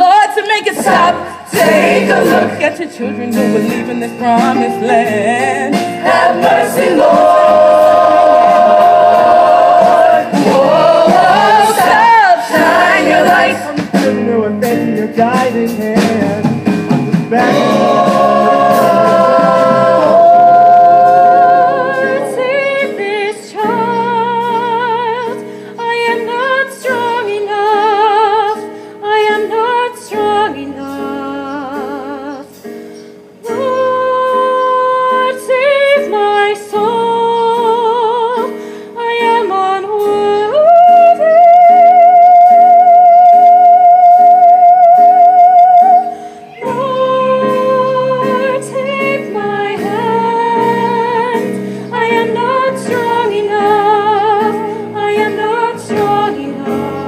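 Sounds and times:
ensemble singing: 0:00.8 - 0:13.8, 0:17.3 - 0:23.8.

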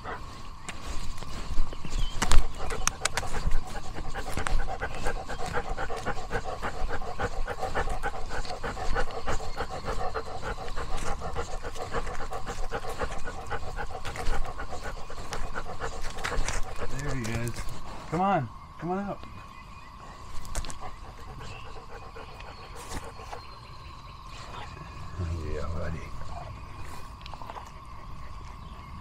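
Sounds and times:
dog panting quickly: 0:00.0 - 0:18.3, 0:20.1 - 0:23.7.

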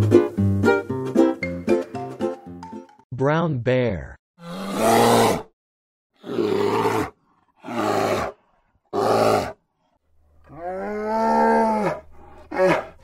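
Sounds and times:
bear roaring: 0:04.4 - 0:05.5, 0:06.2 - 0:09.6, 0:10.4 - 0:13.0.

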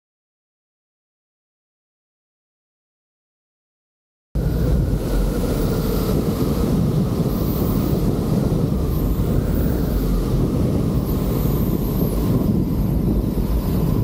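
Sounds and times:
light aircraft engine running: 0:04.4 - 0:14.0
wind buffeting microphone: 0:04.4 - 0:14.0.

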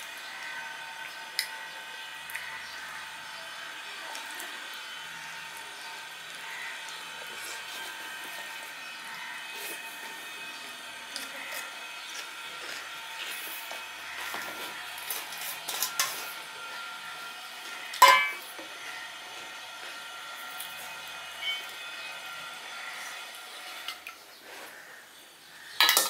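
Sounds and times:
chewing: 0:11.1 - 0:14.8
steel bowl clinks: 0:18.0 - 0:18.4.

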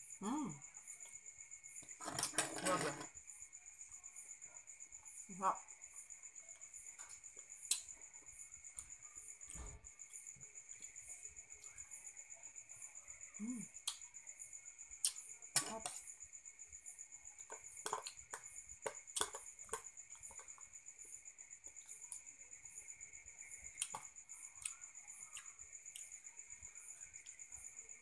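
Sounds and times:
crickets chirring: 0:00.0 - 0:28.0.

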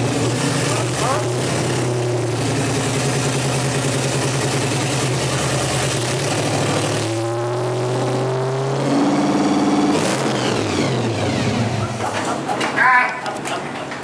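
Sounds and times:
pickup engine idling: 0:00.0 - 0:06.9.

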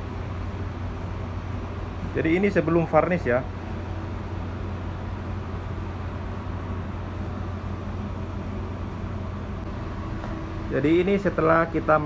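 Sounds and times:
machinery hum and ventilation hiss: 0:00.0 - 0:12.0.

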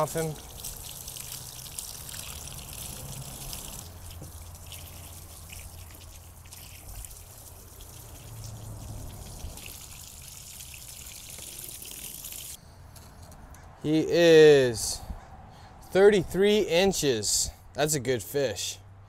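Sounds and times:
running water splashing on fish: 0:00.0 - 0:12.6.

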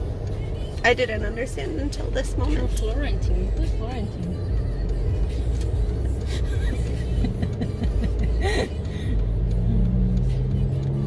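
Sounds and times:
low engine hum: 0:00.0 - 0:11.0
road and engine rumble: 0:00.0 - 0:11.0.

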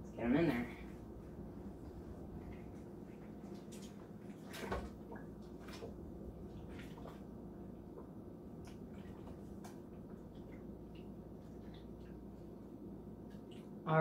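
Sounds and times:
steady low hum: 0:00.0 - 0:14.0
soft knocks and splashes: 0:02.4 - 0:07.3.

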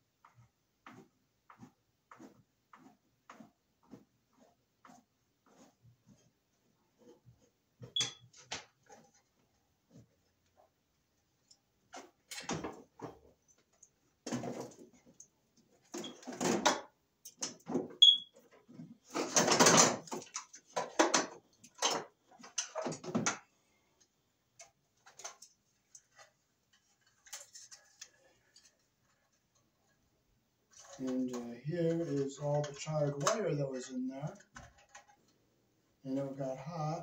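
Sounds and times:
metal box clattering and rattling: 0:19.1 - 0:23.3.

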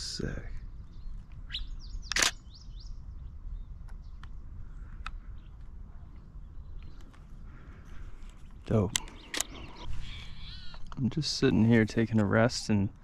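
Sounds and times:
birds chirping: 0:00.0 - 0:13.0
low outdoor rumble: 0:00.0 - 0:13.0
sharp loud click: 0:02.1 - 0:02.4.

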